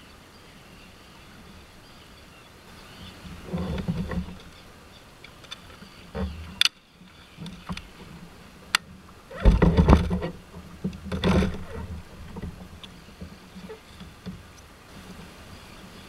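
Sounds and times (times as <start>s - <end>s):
plastic rattling and rubbing: 3.4s - 4.6s, 9.3s - 14.4s.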